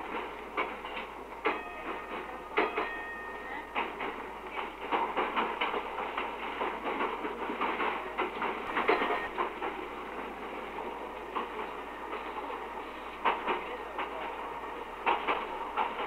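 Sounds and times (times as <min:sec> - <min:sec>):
tram rolling rumble: 0:00.0 - 0:16.0
tram wheels clattering over rail joints: 0:00.0 - 0:16.0.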